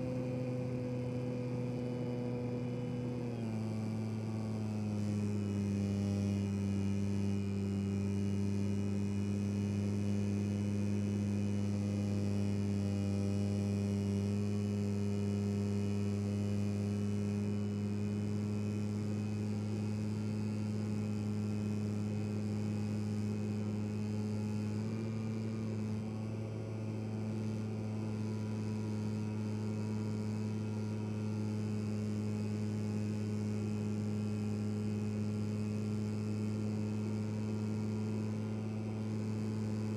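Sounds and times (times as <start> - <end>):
propeller whine: 0.0 - 7.9, 21.9 - 39.9
model plane motor humming: 0.0 - 39.9.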